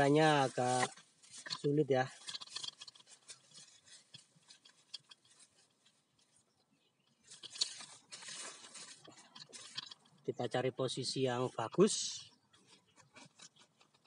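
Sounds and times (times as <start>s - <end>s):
rustling of dry leaves: 0.0s - 14.0s
camera being handled: 0.7s - 5.5s, 7.3s - 10.2s.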